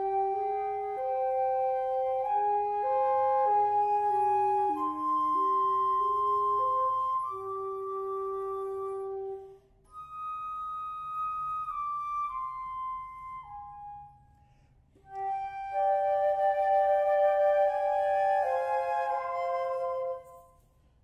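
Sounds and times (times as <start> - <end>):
flutes playing in harmony: 0.0 - 20.7.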